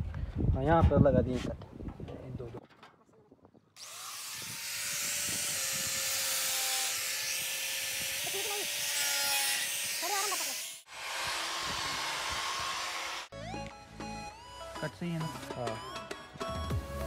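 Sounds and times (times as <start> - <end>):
angle grinder cutting sheet metal: 3.8 - 13.3.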